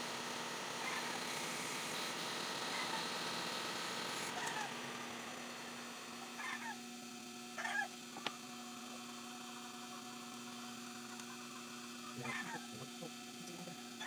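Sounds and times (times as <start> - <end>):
steady electrical hum: 0.0 - 14.0
meow-like calls: 12.2 - 12.9.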